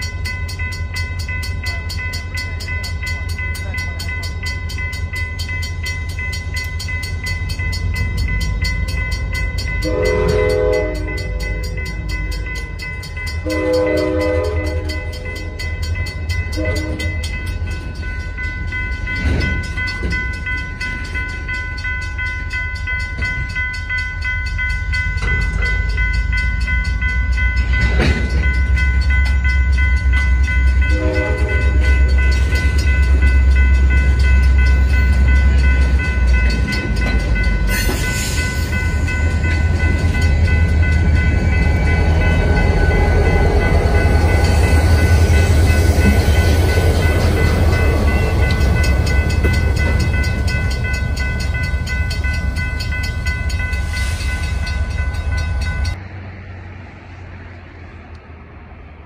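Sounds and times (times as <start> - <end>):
crossing signal bell: 0.0 - 56.1
diesel locomotive engine: 0.0 - 59.0
freight cars rumbling on rails: 0.0 - 59.0.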